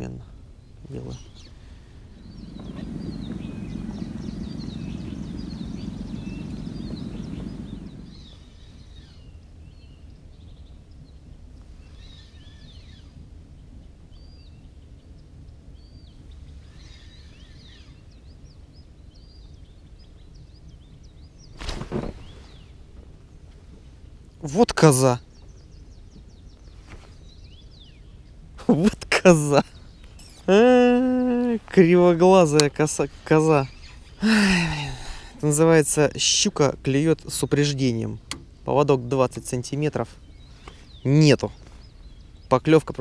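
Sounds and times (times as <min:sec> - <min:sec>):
low steady rumble: 0:00.0 - 0:21.5
faint outdoor background noise: 0:00.0 - 0:43.0
small birds chirping: 0:00.0 - 0:43.0.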